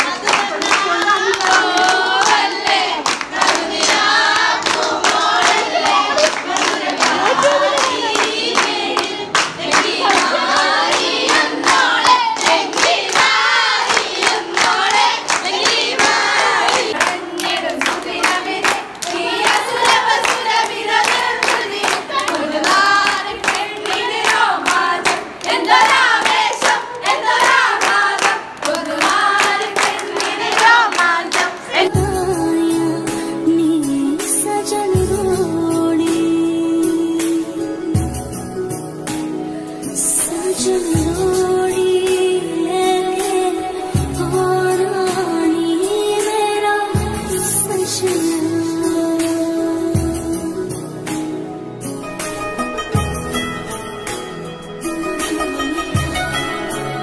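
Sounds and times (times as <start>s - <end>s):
hands clapping rhythmically: 0.0s - 32.0s
women and children singing: 0.0s - 38.0s, 40.0s - 50.7s.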